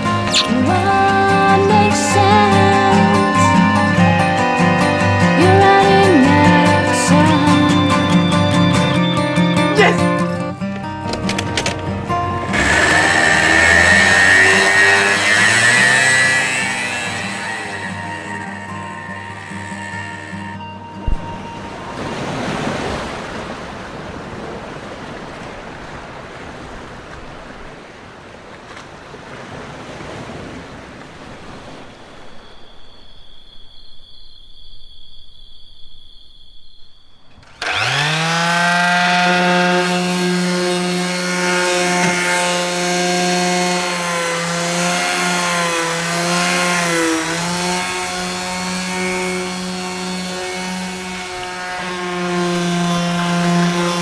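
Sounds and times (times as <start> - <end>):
electric palm sander running: 0.0 - 9.8, 12.1 - 21.6, 37.4 - 54.0
faint high steady tones: 31.8 - 37.5.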